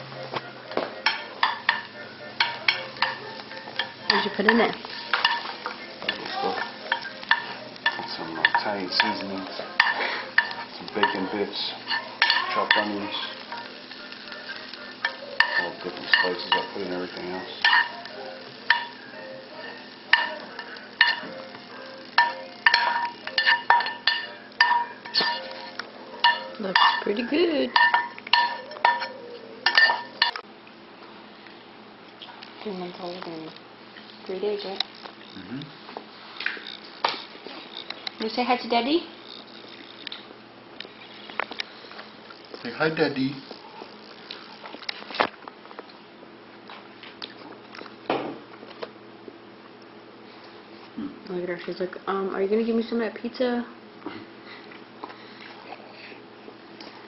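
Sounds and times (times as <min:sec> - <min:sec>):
spoon clinking against frying pan: 0:01.0 - 0:05.5, 0:06.1 - 0:09.2, 0:09.8 - 0:11.3, 0:11.9 - 0:12.9, 0:15.0 - 0:16.8, 0:17.6 - 0:19.0, 0:19.7 - 0:21.4, 0:22.1 - 0:30.4.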